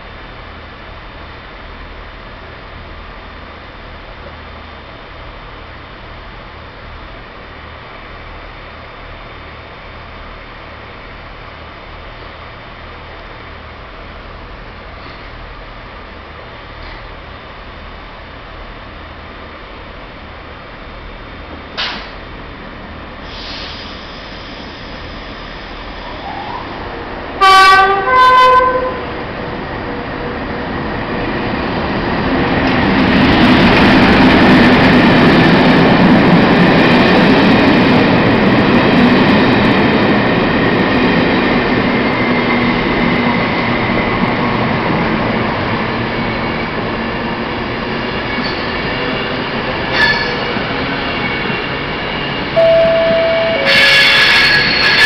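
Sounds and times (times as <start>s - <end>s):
diesel locomotive engine: 0.0s - 55.0s
electric train rushing past: 8.0s - 55.0s
train wheels rolling past: 21.3s - 55.0s
two-note train horn: 27.4s - 29.1s, 52.6s - 55.0s.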